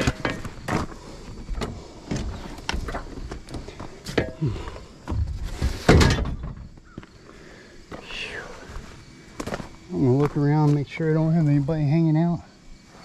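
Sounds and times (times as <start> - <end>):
tools knocking and scraping: 0.0 - 0.9, 1.6 - 6.7.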